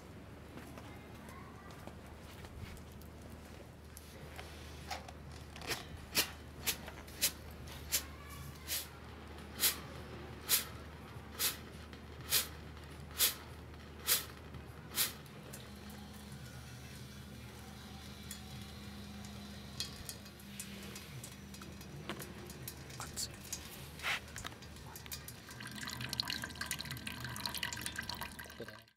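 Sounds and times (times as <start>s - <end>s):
steam and water spitting: 6.1s - 8.9s, 9.5s - 16.2s
water running into metal basin: 15.5s - 28.9s.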